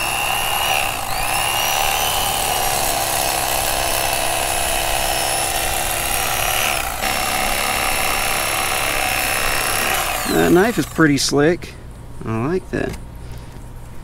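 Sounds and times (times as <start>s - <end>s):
electric knife motor whine: 0.0s - 11.1s.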